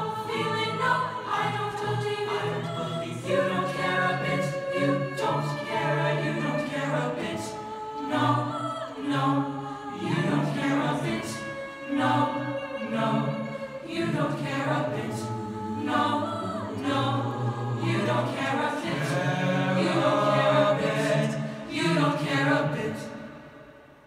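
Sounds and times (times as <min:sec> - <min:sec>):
a cappella group singing: 0:00.0 - 0:23.8.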